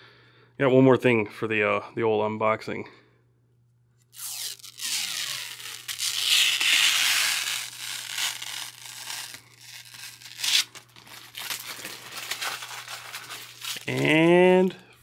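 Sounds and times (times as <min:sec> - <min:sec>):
plastic film peeling: 0:04.1 - 0:14.7
plastic film crinkling: 0:04.2 - 0:14.7.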